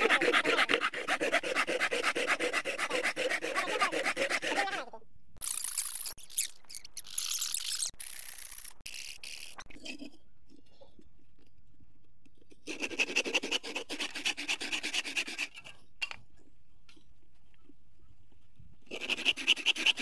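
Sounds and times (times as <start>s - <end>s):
hand saw cutting wood: 0.0s - 4.8s, 12.6s - 15.8s, 18.9s - 20.0s.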